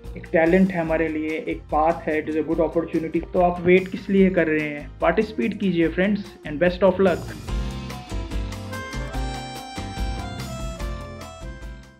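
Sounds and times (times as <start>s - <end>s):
background music: 0.0s - 11.9s.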